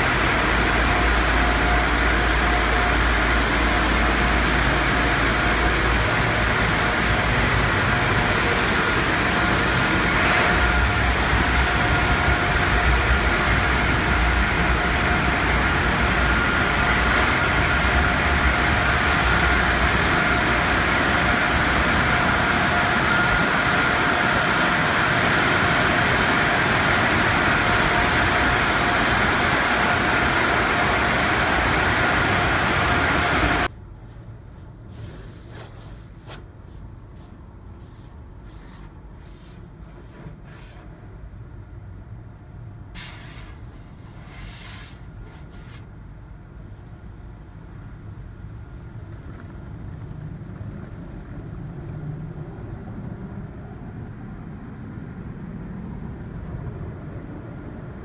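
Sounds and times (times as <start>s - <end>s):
car wash water spray: 0.0s - 17.8s, 18.5s - 40.9s, 43.0s - 45.9s
faint steady whine: 0.0s - 58.0s
low machinery rumble: 0.0s - 58.0s.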